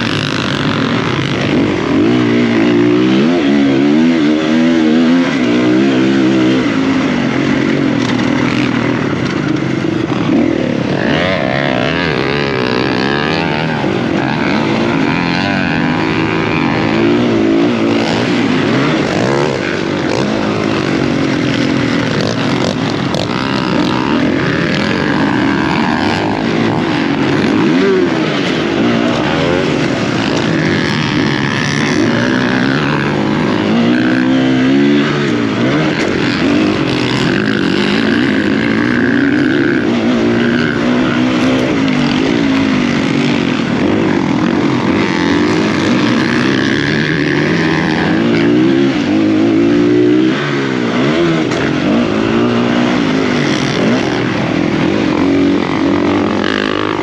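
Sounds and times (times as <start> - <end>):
motocross bike engine revving: 0.0 - 57.0.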